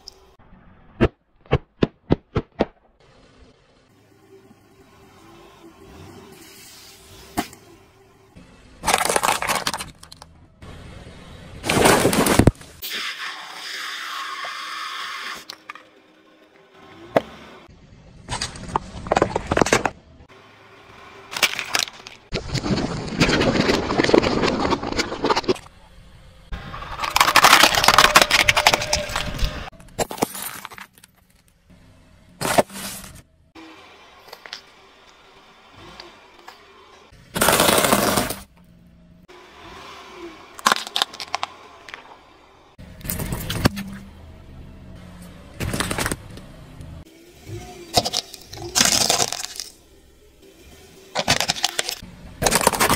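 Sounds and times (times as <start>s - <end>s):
car tyres crushing bottles and cans: 8.7s - 10.6s, 11.6s - 13.1s, 18.2s - 20.3s, 21.2s - 31.6s, 32.3s - 33.3s, 35.9s - 38.7s, 40.5s - 44.0s, 45.2s - 46.5s, 47.8s - 50.0s, 51.1s - 52.9s
tyre crushing objects: 8.8s - 10.2s, 11.6s - 12.8s, 26.7s - 31.0s, 37.3s - 38.5s, 51.2s - 52.9s
sharp cracks and pops: 26.8s - 31.6s, 47.9s - 49.8s.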